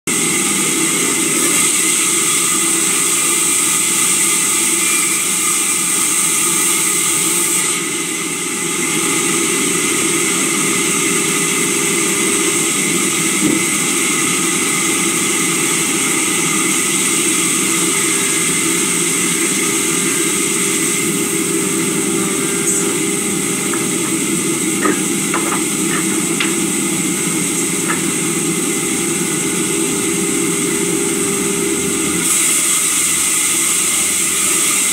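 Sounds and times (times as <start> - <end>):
sawmill machinery humming and whining: 0.1 - 34.9
timber knocks: 23.6 - 26.8, 27.4 - 28.3.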